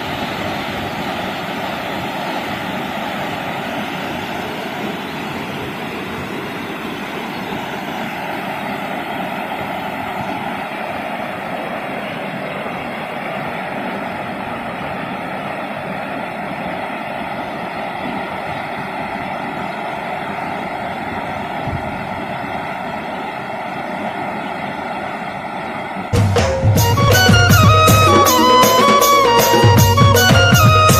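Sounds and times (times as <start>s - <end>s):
waterfall roaring into pool: 0.0s - 29.6s
music: 26.2s - 30.9s.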